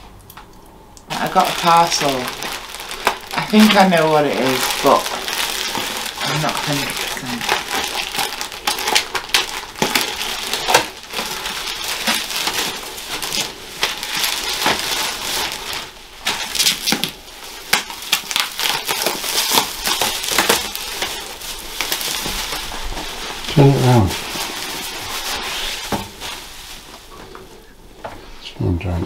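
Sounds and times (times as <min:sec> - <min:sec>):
plastic and bubble wrap crinkling: 0:01.1 - 0:28.4.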